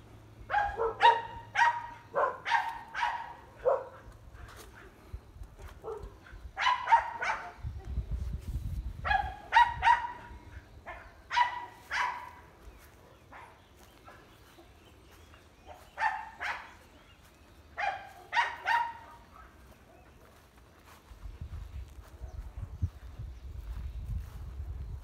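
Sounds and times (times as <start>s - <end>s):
dog barking: 0.5s - 4.9s, 5.7s - 7.6s, 9.0s - 14.3s, 15.6s - 16.9s, 17.8s - 20.2s.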